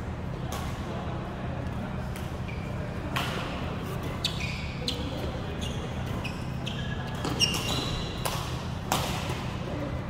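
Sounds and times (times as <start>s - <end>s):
shoes squeaking on floor: 4.1s - 8.2s
racket striking shuttlecock: 7.2s - 9.5s.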